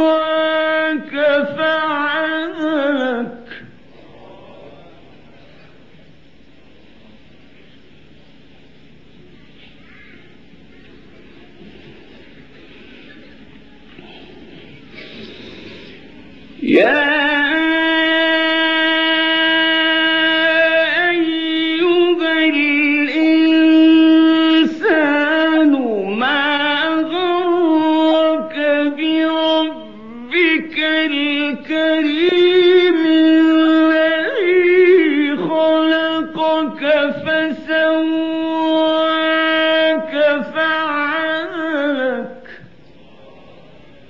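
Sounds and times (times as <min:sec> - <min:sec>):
man chanting melodic recitation: 0:00.0 - 0:03.6, 0:16.6 - 0:42.6.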